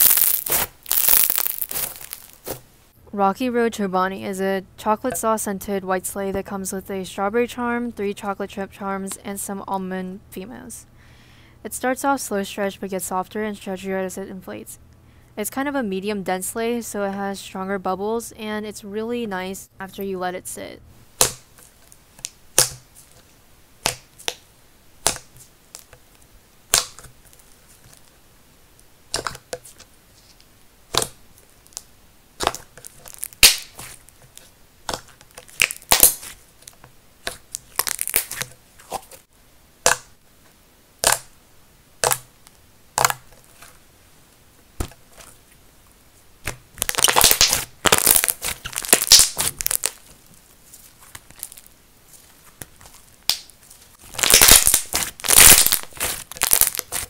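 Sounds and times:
crackling slime pops: 0.0s - 2.6s, 23.8s - 24.4s, 25.0s - 25.9s, 26.7s - 27.4s, 30.9s - 36.4s, 37.2s - 39.0s, 41.0s - 41.3s, 42.0s - 42.3s, 43.0s - 43.2s, 46.4s - 50.1s, 51.1s - 51.7s, 52.6s - 57.0s.

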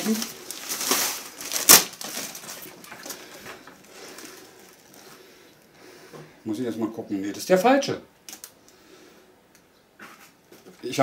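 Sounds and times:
plastic packaging crinkling: 0.0s - 5.2s, 8.3s - 8.6s
sharp plastic crackle: 0.0s - 5.2s, 8.2s - 8.7s.

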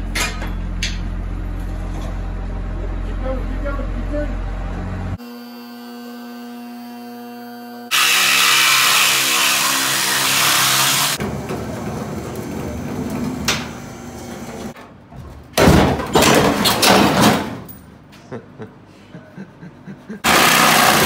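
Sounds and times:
reciprocating saw cutting metal: 5.2s - 11.2s, 20.2s - 21.0s.

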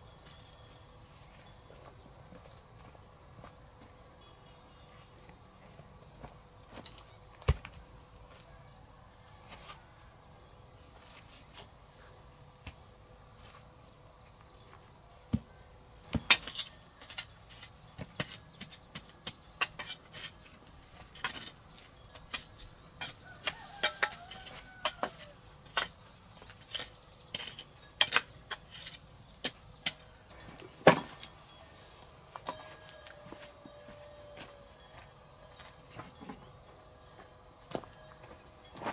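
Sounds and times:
insect chirring: 16.6s - 30.6s.

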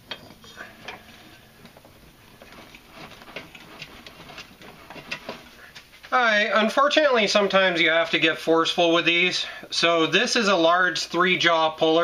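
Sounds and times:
metal tools clicking and tapping: 0.0s - 1.0s.

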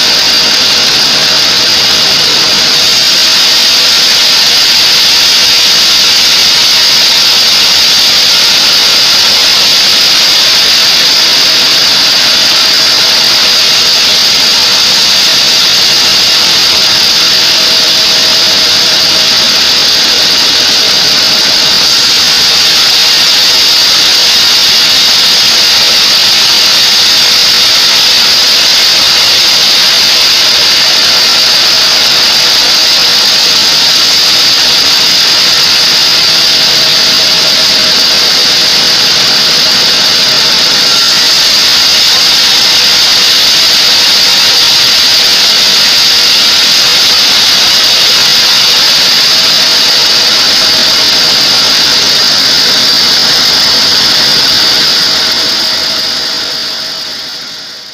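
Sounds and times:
band saw cutting timber: 0.0s - 57.9s.

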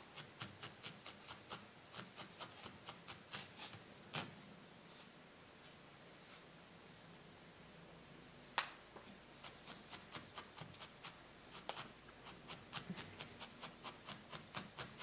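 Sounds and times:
felting needle poking wool: 0.0s - 4.4s, 9.0s - 15.0s.

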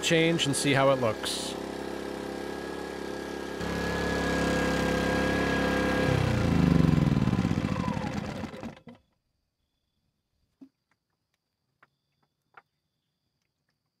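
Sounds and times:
generator engine running: 0.0s - 9.0s.

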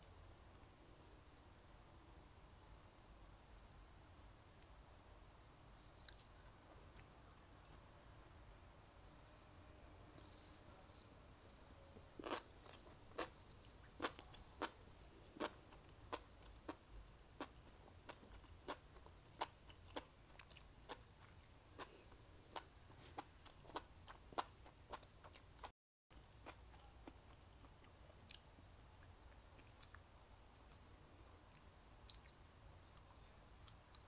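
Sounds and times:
close chewing with wet clicks: 12.2s - 30.8s, 31.4s - 34.0s.

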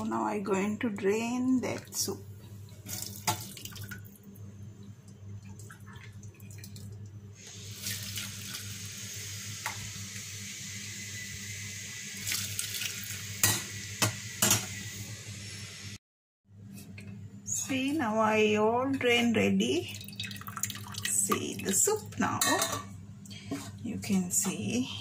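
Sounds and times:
broth pouring through strainer: 20.0s - 21.1s.

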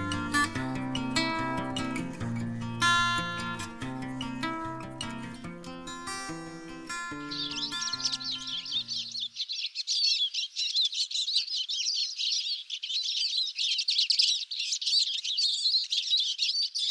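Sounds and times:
acoustic guitar tune: 0.0s - 9.2s
small birds twittering: 0.0s - 16.9s.

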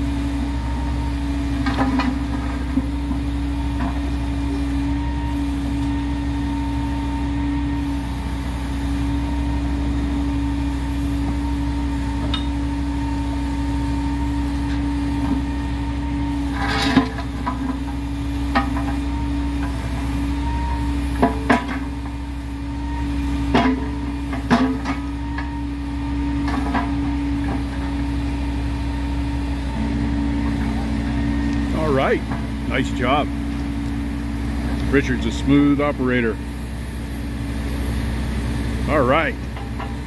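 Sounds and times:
diesel engine humming: 0.0s - 40.0s.

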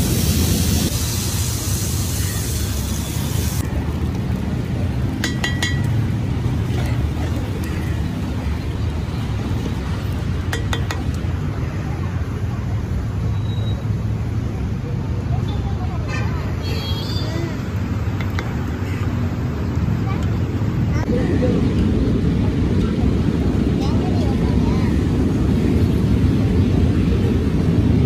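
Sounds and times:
water hissing on hot griddle: 0.0s - 4.8s.

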